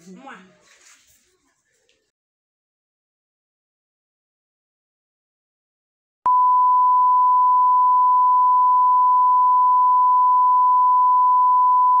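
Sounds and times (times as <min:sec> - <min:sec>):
high-pitched test tone beep: 0:06.3 - 0:12.0.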